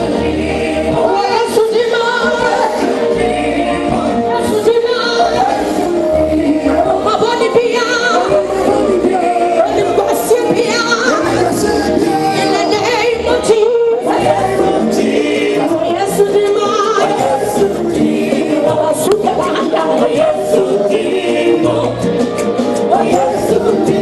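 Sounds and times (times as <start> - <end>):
bass line: 0.0 - 24.0
steady percussion: 0.0 - 24.0
voices singing gospel together: 0.0 - 24.0.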